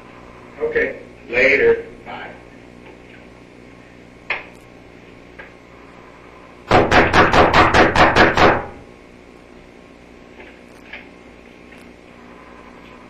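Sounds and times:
loud knocks on hard surface: 6.7s - 8.8s.

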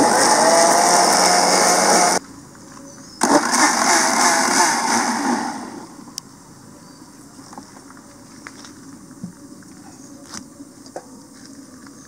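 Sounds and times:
blender whining: 0.0s - 2.2s, 3.2s - 5.9s.

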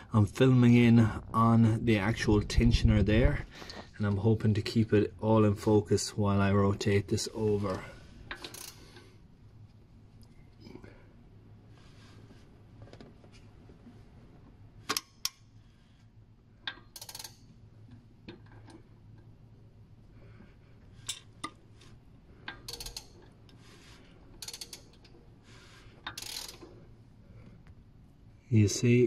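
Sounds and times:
timing chain tensioner clicking: 16.8s - 17.4s, 22.6s - 23.2s, 24.4s - 25.1s, 26.1s - 26.6s.

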